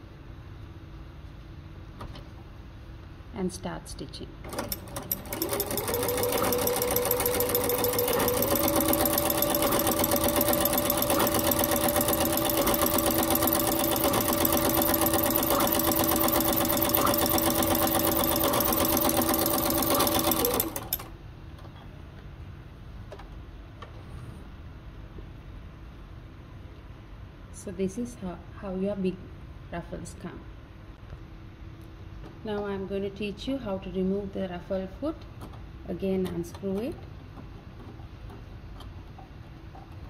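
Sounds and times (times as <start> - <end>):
sewing machine clattering: 4.5 - 21.1.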